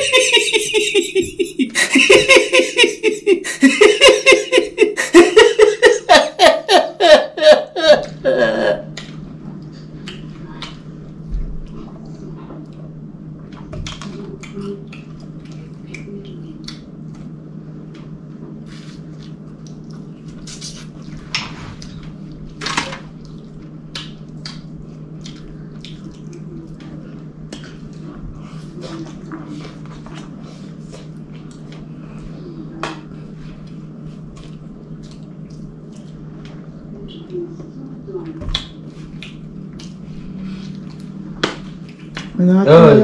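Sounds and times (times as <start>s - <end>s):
person laughing: 0.0s - 8.9s
steady low hum: 0.0s - 43.0s
messy eating mouth smacks: 8.9s - 11.0s, 11.6s - 36.6s, 38.2s - 42.4s.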